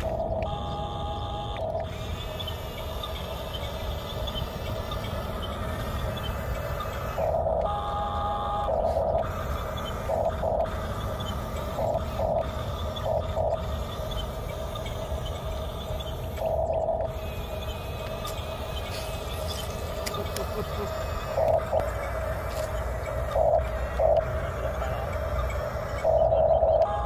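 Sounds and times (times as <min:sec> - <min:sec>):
toy bulldozer motor whining: 0:00.0 - 0:27.0.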